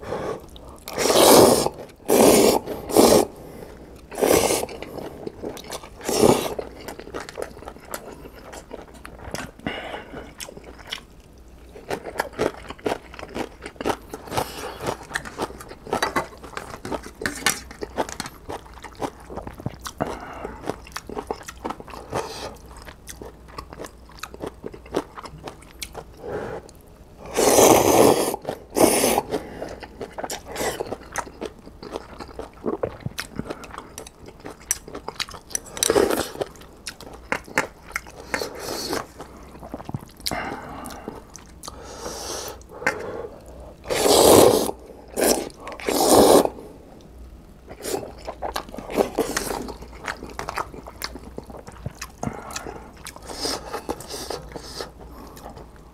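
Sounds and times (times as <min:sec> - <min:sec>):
slurping noodles: 0:00.0 - 0:03.4, 0:04.1 - 0:05.1, 0:06.0 - 0:06.8, 0:27.2 - 0:29.5, 0:43.8 - 0:46.6
wet chewing and crunching: 0:04.0 - 0:26.8, 0:28.4 - 0:41.8, 0:47.6 - 0:55.9.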